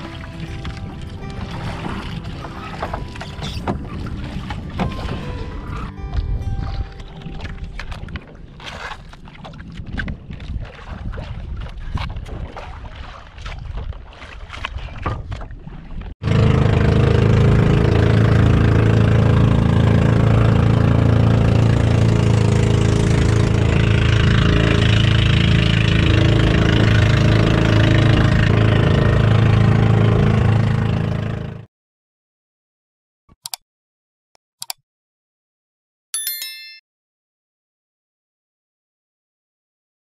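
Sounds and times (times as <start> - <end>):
boat engine droning: 0.0 - 9.4, 16.2 - 31.7
water noise: 0.0 - 31.5
wind on microphone: 0.6 - 16.1
clicks: 34.6 - 34.8.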